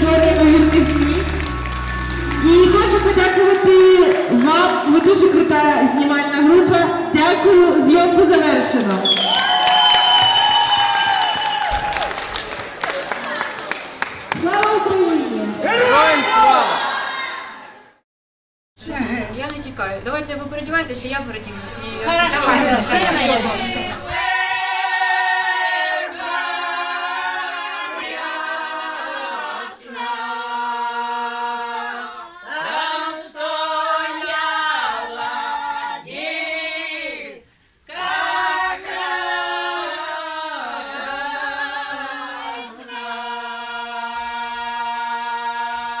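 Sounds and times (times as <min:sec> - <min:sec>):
women singing in harmony: 0:22.4 - 0:46.0.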